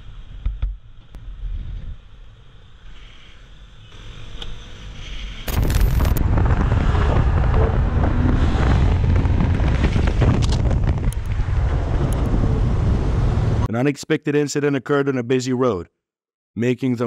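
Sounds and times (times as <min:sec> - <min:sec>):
motorcycle rumble: 0:03.8 - 0:13.7
wind buffeting microphone: 0:05.5 - 0:13.7.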